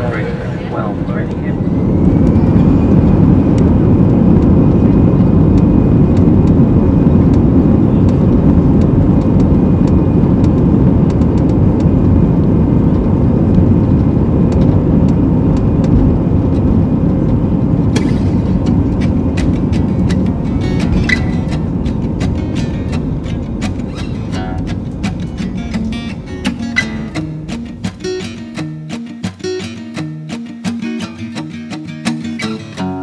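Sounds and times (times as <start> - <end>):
faint high whine: 0.0 - 8.9
jet engines at high thrust: 0.0 - 28.5.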